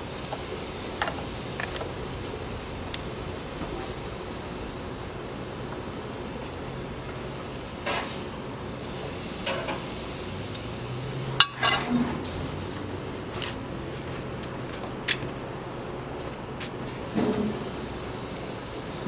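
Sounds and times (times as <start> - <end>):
meat sizzling on a grill: 0.0 - 11.8, 17.0 - 19.0
metal tongs scraping grill grate: 11.4 - 12.1.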